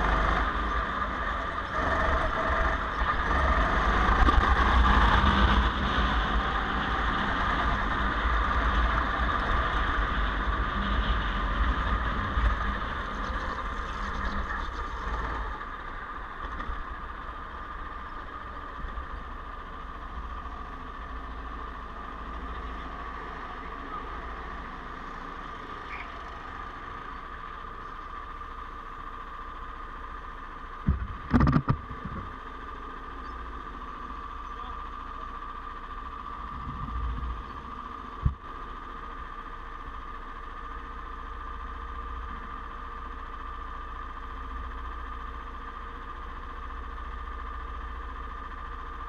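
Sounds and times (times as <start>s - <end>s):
go-kart engine: 0.0s - 49.0s
loud thumps: 30.8s - 32.2s.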